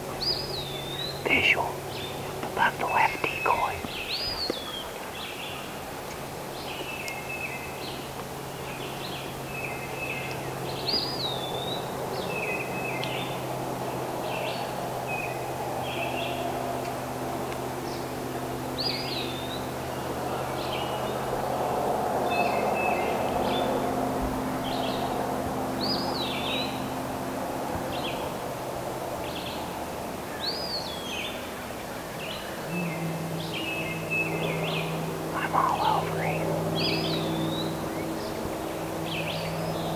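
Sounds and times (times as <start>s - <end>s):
steady low hum: 0.0s - 39.9s
low bird chirps: 32.2s - 39.9s.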